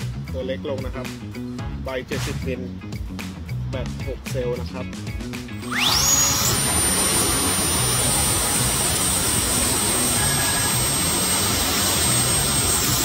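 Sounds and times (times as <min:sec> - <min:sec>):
jet fan rushing air and whine: 0:04.2 - 0:13.0.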